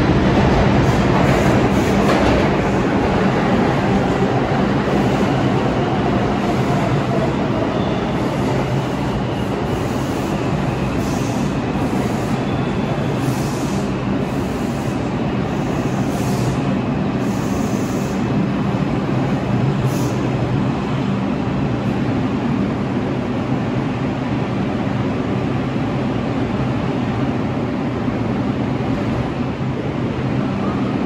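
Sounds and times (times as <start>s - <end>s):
subway train rumbling: 0.0s - 31.0s.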